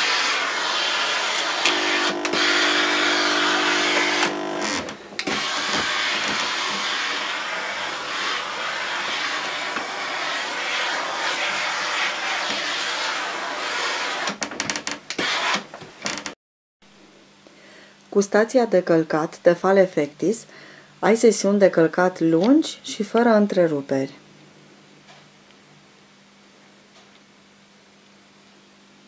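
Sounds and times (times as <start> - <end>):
steam iron hissing: 0.0 - 14.4.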